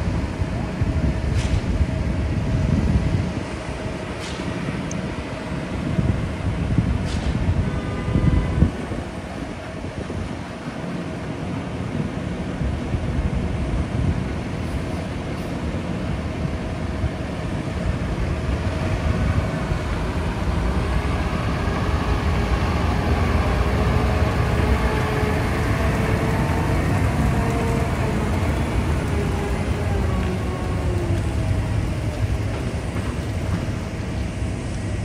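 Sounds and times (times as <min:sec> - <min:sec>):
truck diesel engine rumbling: 0:17.3 - 0:35.0.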